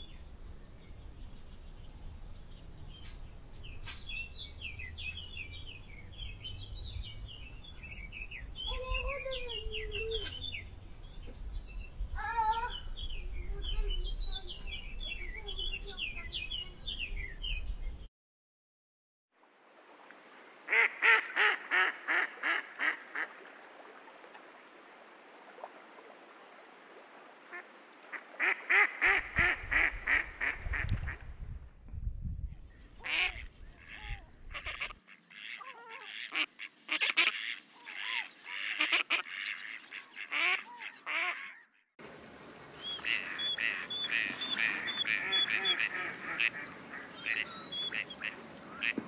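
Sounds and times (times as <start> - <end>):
waterfowl calling: 20.7 - 23.5, 27.5 - 31.2, 33.0 - 41.8, 42.8 - 49.0.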